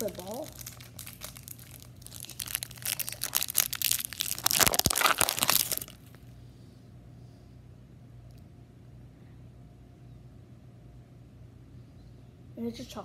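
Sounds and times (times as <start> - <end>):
candy wrapper crinkling: 0.0 - 6.2.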